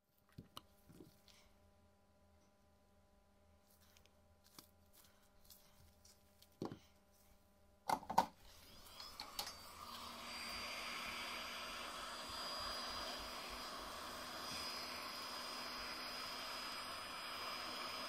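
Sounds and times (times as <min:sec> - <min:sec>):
small blower rushing: 0:08.5 - 0:18.0.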